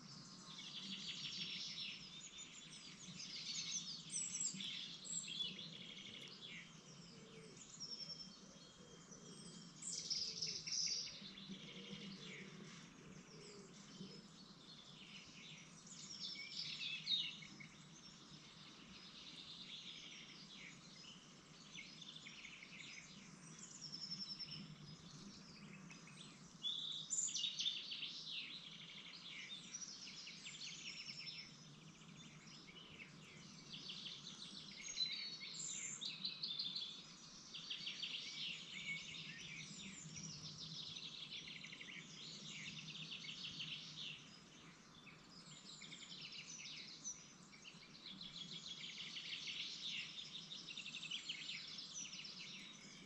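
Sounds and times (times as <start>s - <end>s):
songbirds chirping: 0.0s - 53.0s.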